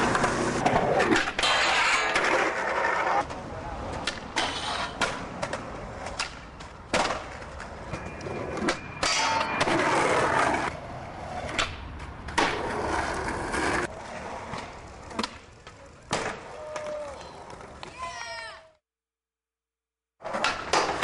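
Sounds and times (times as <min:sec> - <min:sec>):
skateboard clacks: 0:00.0 - 0:10.8, 0:20.2 - 0:21.0
skateboard wheels rolling on concrete: 0:00.0 - 0:18.8, 0:20.2 - 0:21.0.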